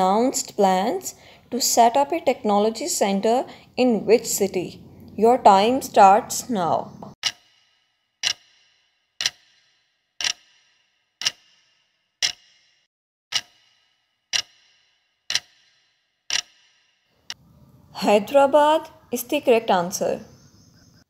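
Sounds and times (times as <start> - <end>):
clock ticks: 7.2 - 7.6, 8.2 - 8.6, 9.2 - 9.6, 10.2 - 11.6, 12.2 - 12.7, 13.3 - 16.7.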